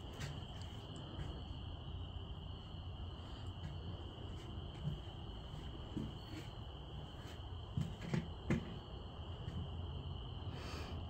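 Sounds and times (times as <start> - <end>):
crickets trilling: 0.0 - 11.0
soft knocks: 7.8 - 8.8.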